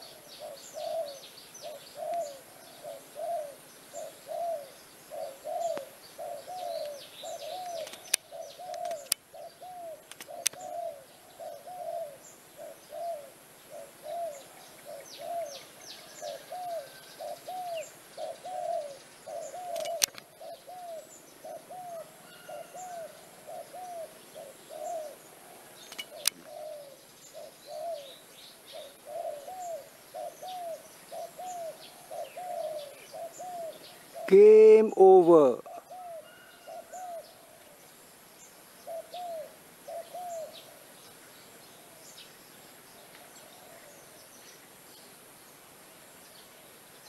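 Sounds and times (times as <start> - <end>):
bird low call: 0.0 - 42.4
small birds chirping: 0.0 - 47.0
sharp clicks: 7.6 - 9.2, 10.1 - 10.6, 19.7 - 20.3, 25.9 - 26.4.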